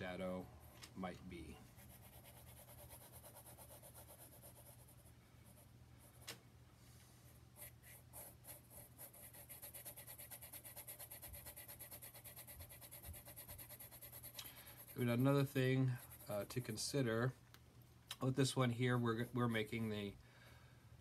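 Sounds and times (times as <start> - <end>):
pencil shading on paper: 1.8 - 6.2, 7.6 - 16.5.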